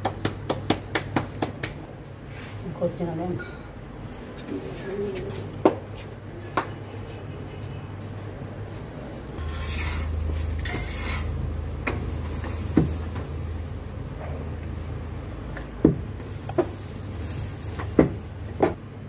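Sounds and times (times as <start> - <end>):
steady low hum: 9.1 - 19.0.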